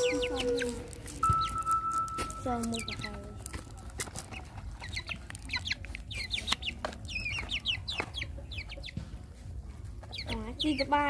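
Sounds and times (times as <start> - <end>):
chicken peeping: 0.0 - 11.0.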